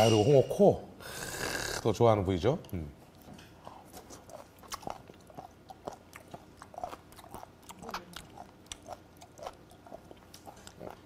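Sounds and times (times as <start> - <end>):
man chewing crunchy food: 3.1 - 11.0.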